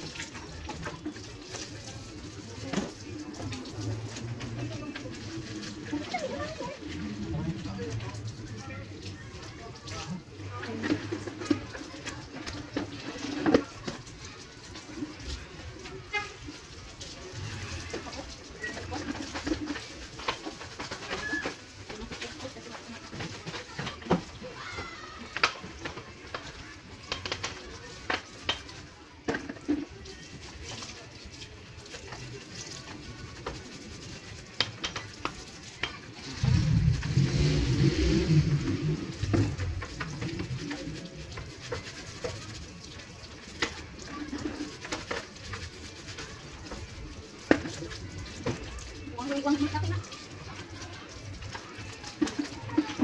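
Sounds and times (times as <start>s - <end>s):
water splashing: 0.0s - 53.0s
loud rumbling noise: 36.2s - 40.8s.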